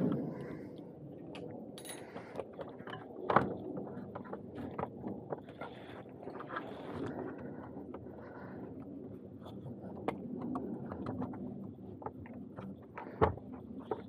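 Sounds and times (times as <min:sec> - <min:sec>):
plastic parts knocking and rattling: 0:09.9 - 0:14.0.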